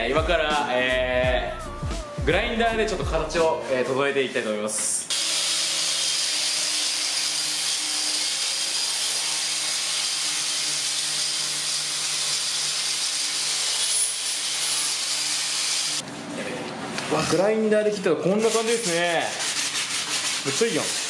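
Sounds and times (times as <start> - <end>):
angle grinder cutting wood: 5.1 - 16.0.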